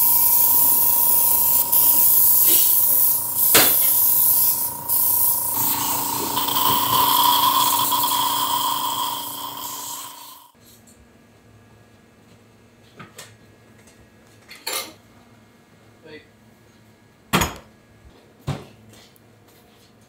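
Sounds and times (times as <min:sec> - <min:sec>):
air compressor whine: 0:00.0 - 0:10.5
airbrush spray hissing: 0:00.0 - 0:10.5.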